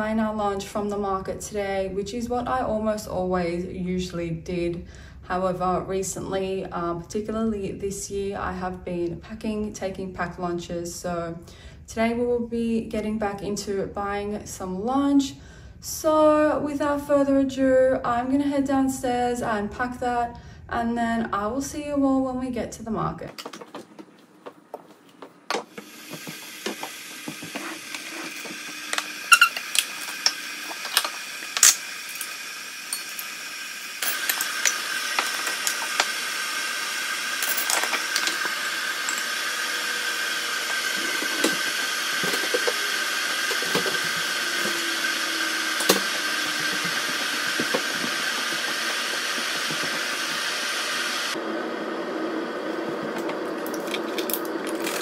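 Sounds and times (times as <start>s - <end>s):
kitchen appliance hissing: 25.6s - 55.0s
cups and utensils clinking: 40.7s - 42.9s.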